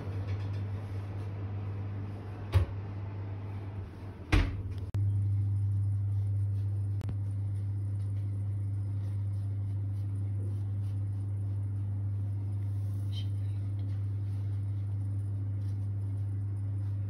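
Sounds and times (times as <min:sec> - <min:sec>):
steady low hum: 0:00.0 - 0:17.0
oven door thumping shut: 0:04.3 - 0:04.8.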